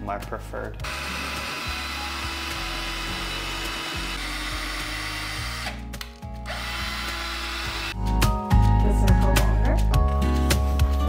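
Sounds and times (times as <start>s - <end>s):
cordless drill boring into ceiling: 0.8s - 5.8s, 6.4s - 8.0s.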